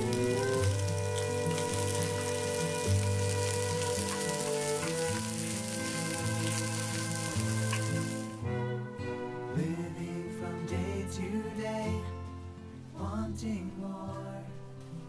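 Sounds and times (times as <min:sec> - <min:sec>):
pancakes sizzling in oil: 0:00.0 - 0:08.4
background music: 0:00.0 - 0:15.0.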